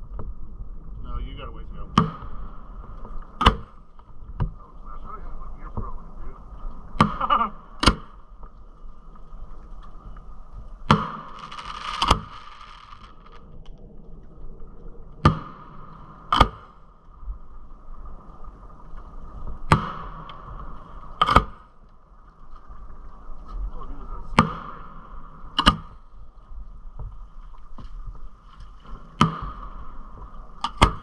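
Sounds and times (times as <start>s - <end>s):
firework crackle: 10.9s - 13.4s
firework launch thump: 10.9s - 13.4s
firework shell bursting: 10.9s - 13.4s.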